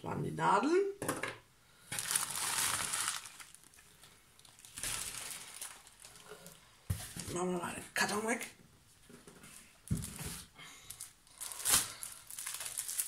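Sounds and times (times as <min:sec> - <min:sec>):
plastic bag crinkling: 0:01.9 - 0:06.8, 0:10.9 - 0:13.0.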